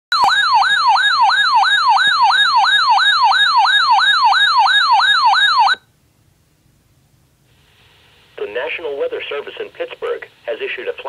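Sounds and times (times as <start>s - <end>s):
warbling siren alarm: 0.1s - 5.9s.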